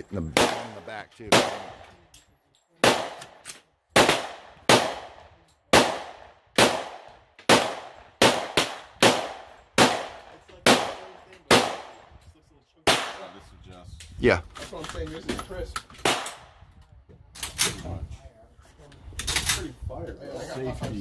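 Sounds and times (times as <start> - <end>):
rifle gunshots echoing: 0.3 - 2.0, 2.8 - 12.1, 12.8 - 13.4, 16.0 - 16.5.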